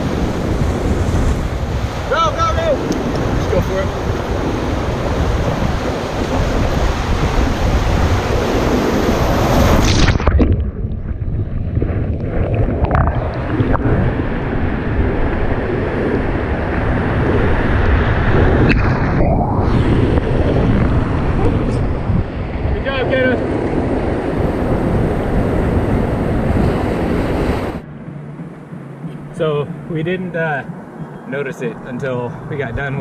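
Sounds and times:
wind buffeting: 0.0s - 33.0s.

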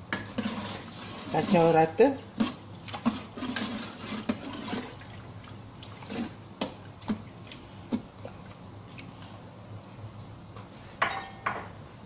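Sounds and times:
liquid sloshing in pot: 0.0s - 9.7s.

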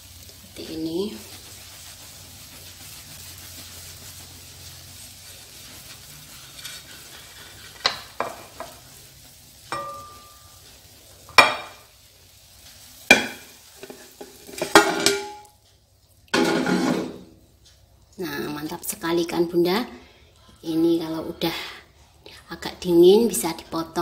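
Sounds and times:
oil sizzling in a frying pan: 0.0s - 22.2s
utensils knocking and scraping pan: 6.2s - 8.9s, 9.7s - 10.5s, 11.3s - 11.9s, 13.1s - 15.4s, 16.4s - 17.3s.

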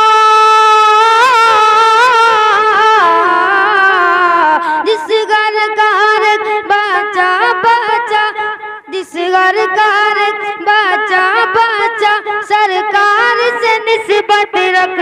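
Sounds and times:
boy singing unaccompanied: 0.0s - 15.0s
short breath: 4.6s - 4.9s.

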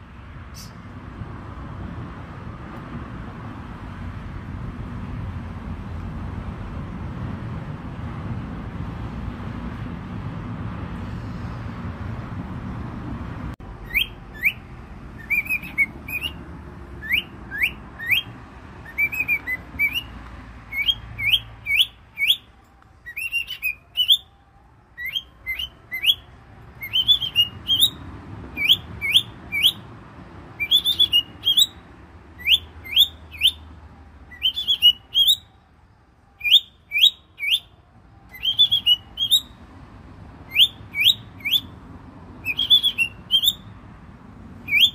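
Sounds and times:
cockatiels chirping: 13.8s - 14.6s, 15.2s - 16.4s, 17.0s - 20.1s, 20.7s - 22.5s, 23.1s - 24.3s, 25.0s - 28.0s, 28.6s - 29.8s, 30.6s - 31.8s, 32.4s - 33.6s, 34.3s - 35.5s, 36.4s - 37.7s, 38.3s - 39.6s, 40.5s - 41.7s, 42.4s - 43.6s, 44.6s - 44.9s.

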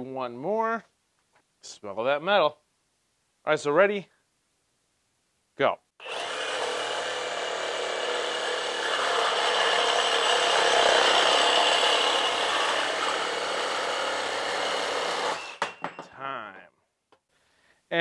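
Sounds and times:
reciprocating saw cutting metal pipe: 6.0s - 16.0s.

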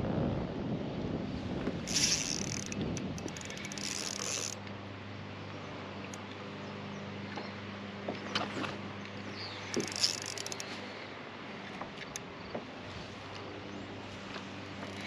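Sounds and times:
steady low mechanical hum: 0.0s - 15.0s
fishing reel whirring and clicking: 1.8s - 4.7s, 9.3s - 10.8s, 11.7s - 12.3s, 14.7s - 15.0s.

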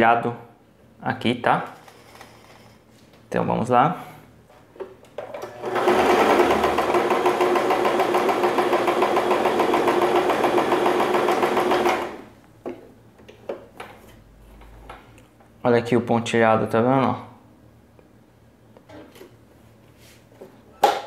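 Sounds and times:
sewing machine running: 5.4s - 12.3s.

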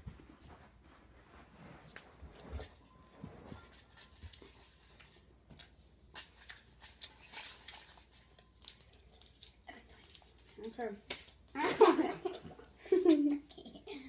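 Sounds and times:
candy wrapper crinkling: 3.8s - 11.5s.

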